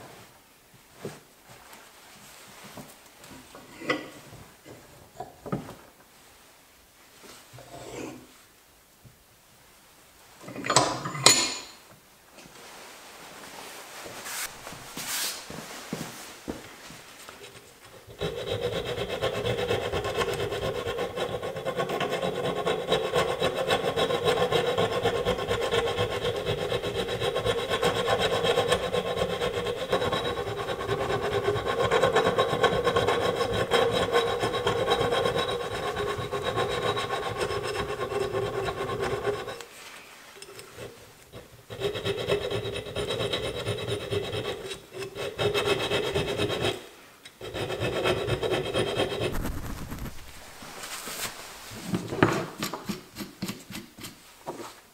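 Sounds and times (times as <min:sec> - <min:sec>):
steel file rasping on metal: 0:18.0 - 0:39.6, 0:40.7 - 0:49.4, 0:51.9 - 0:54.2.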